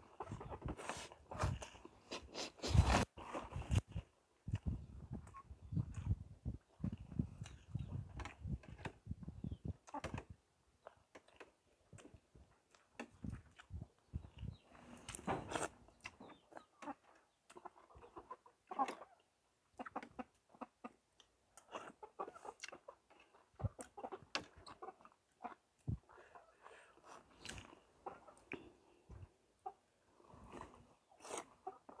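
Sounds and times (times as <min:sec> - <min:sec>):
person chewing: 0:00.2 - 0:06.1, 0:10.8 - 0:13.8, 0:22.6 - 0:25.2, 0:26.2 - 0:28.9, 0:30.5 - 0:31.6.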